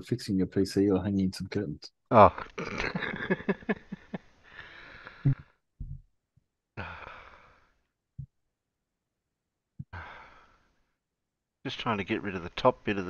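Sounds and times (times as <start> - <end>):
short low thumps: 5.8 - 6.1
person breathing out heavily: 6.8 - 7.8, 9.9 - 10.7.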